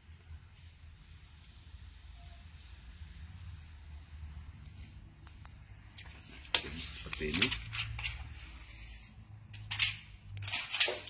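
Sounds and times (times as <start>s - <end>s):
plastic film crinkling as peeled: 9.6s - 11.0s.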